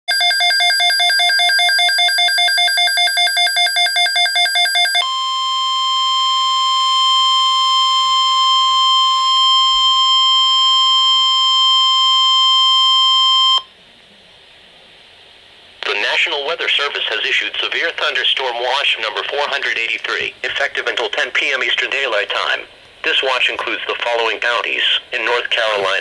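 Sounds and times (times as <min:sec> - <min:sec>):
steady alarm tone: 0:00.1 - 0:13.7.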